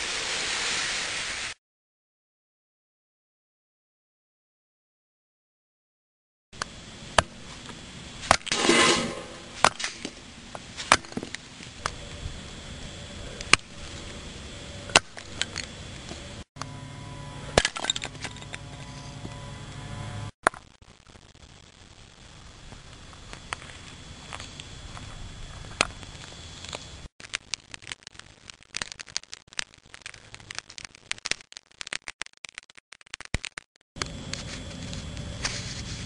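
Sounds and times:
low steady hum: 0:06.6 - 0:20.3.

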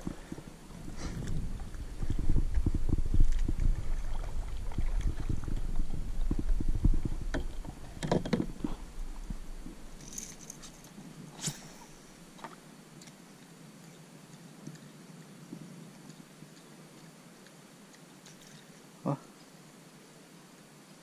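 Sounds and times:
low microphone rumble: 0:00.0 - 0:11.4
gear knocking on plastic kayak: 0:02.0 - 0:08.7.

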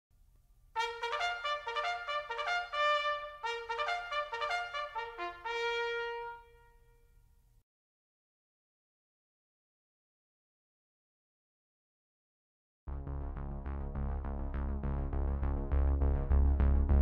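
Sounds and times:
brass fanfare: 0:00.8 - 0:06.9.

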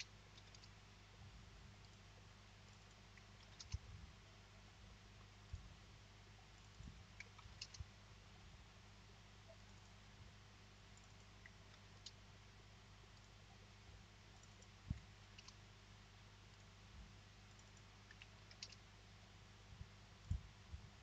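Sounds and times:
computer mouse clicks: 0:00.0 - 0:00.8, 0:02.7 - 0:03.8, 0:06.6 - 0:07.9, 0:11.0 - 0:12.2, 0:14.4 - 0:15.6, 0:17.5 - 0:18.8
low steady hum: 0:00.0 - 0:21.0.

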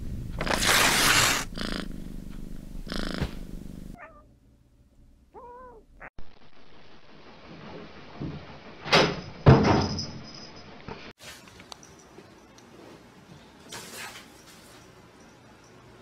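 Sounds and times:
cat purring: 0:01.0 - 0:04.2
cat meow: 0:04.0 - 0:04.3, 0:05.3 - 0:05.9.

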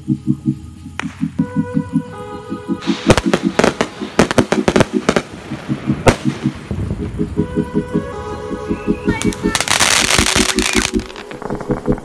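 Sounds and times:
fireworks bangs and crackles: 0:02.8 - 0:07.3, 0:09.1 - 0:12.0.

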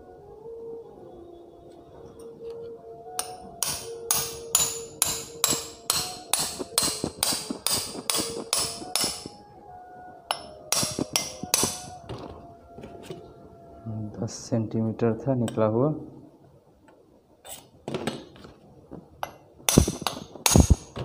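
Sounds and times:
hammer striking metal shaft: 0:03.2 - 0:09.4, 0:10.3 - 0:12.0, 0:19.2 - 0:20.9.

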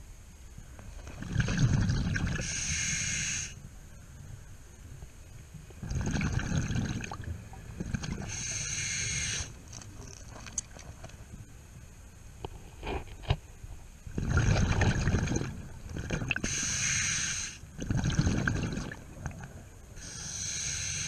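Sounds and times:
exhaled bubbles rumbling: 0:00.9 - 0:02.5, 0:05.7 - 0:08.5, 0:14.1 - 0:16.5, 0:17.7 - 0:19.7
regulator inhale hiss: 0:02.4 - 0:03.6, 0:08.3 - 0:09.6, 0:16.4 - 0:17.7, 0:20.0 - 0:21.0.

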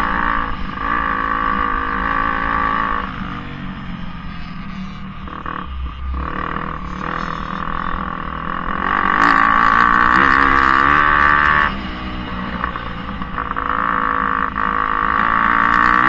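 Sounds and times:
dirt bike engine revving: 0:00.0 - 0:16.0.

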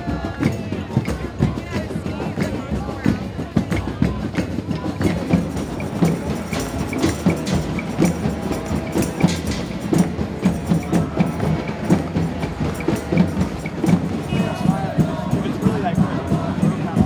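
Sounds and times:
hand drums beating: 0:00.0 - 0:17.0.

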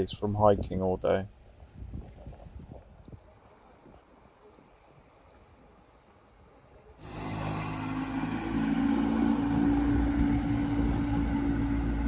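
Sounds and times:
outboard motor running: 0:07.0 - 0:12.0.

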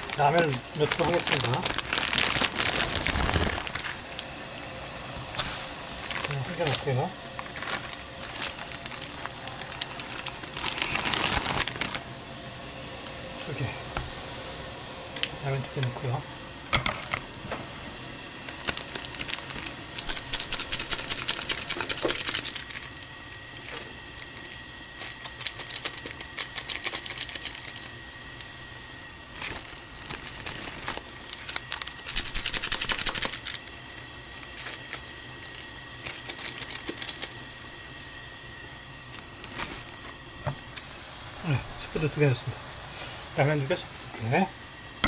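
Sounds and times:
plastic sachets crinkling: 0:00.0 - 0:04.3, 0:05.3 - 0:12.1, 0:18.5 - 0:38.1, 0:39.1 - 0:40.2.

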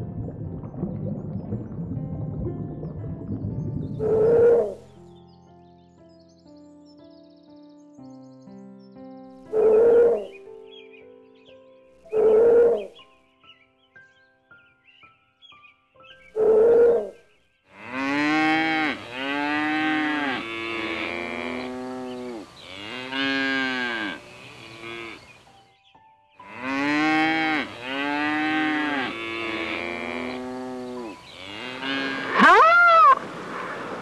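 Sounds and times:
reindeer moo-like calls: 0:17.8 - 0:25.4, 0:26.5 - 0:33.2
short high animal call: 0:31.8 - 0:33.2.

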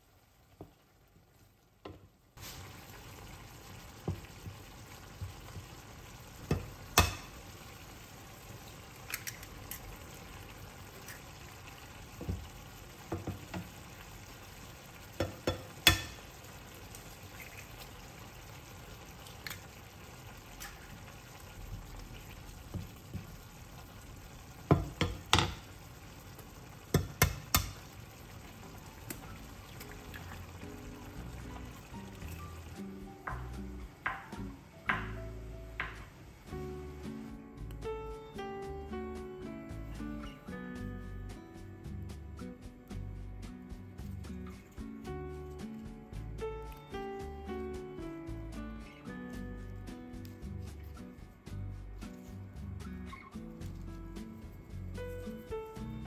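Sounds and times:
food sizzling in frying pan: 0:00.0 - 0:56.0
utensil clacking against pan: 0:15.2 - 0:16.3, 0:26.9 - 0:27.9.

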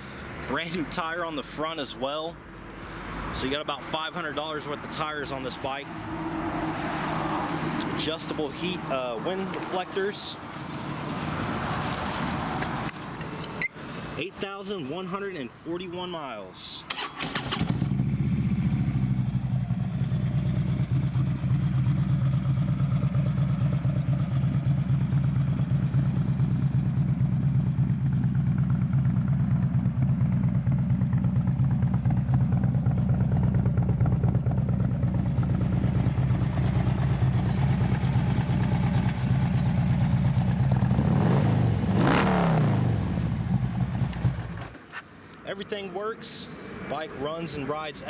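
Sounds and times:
motorcycle engine idling: 0:17.6 - 0:41.0, 0:43.0 - 0:44.7.

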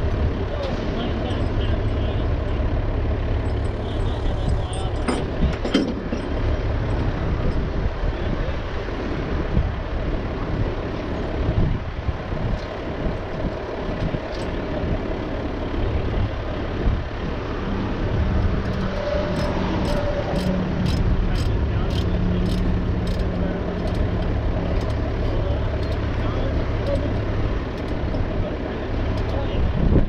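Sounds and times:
heavy engine idling: 0:00.0 - 0:30.0.

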